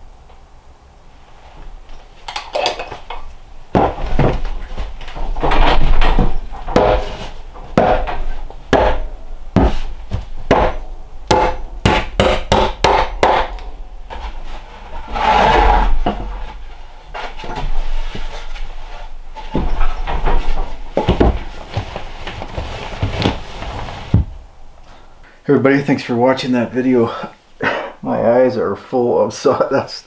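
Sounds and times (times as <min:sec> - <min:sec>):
board scraping against wall: 0:03.8 - 0:10.8, 0:14.0 - 0:24.4
hammer driving nails into wood: 0:06.7 - 0:07.2, 0:07.8 - 0:09.8, 0:10.5 - 0:13.6.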